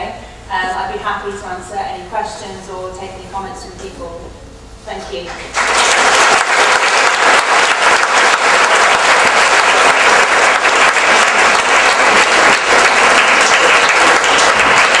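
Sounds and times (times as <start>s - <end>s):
audience applauding: 5.3s - 15.0s.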